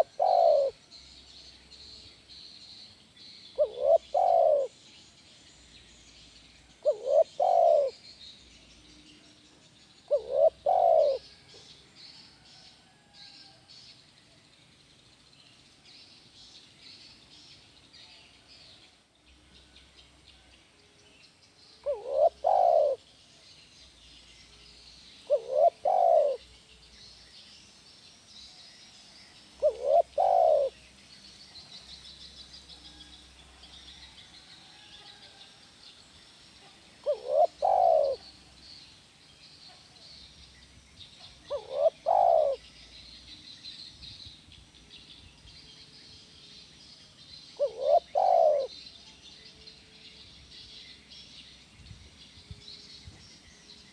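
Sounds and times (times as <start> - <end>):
dove cooing: 0.0 - 0.8, 3.6 - 4.8, 6.8 - 8.0, 10.1 - 11.6, 21.8 - 23.0, 25.2 - 26.4, 29.6 - 30.8, 37.0 - 38.3, 41.5 - 42.7, 47.6 - 48.8.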